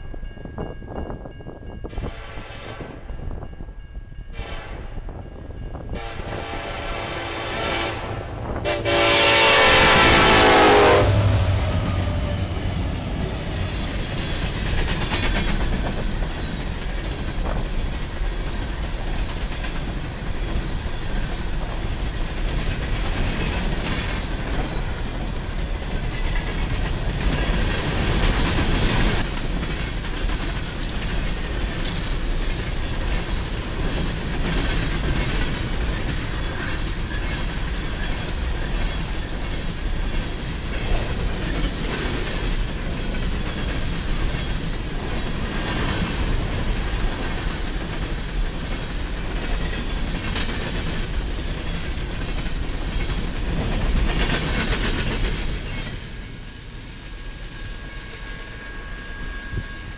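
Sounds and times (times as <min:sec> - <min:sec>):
train wheels clattering on rail: 0:08.4 - 0:57.3
faint high wheel squeal: 0:57.2 - 0:59.9.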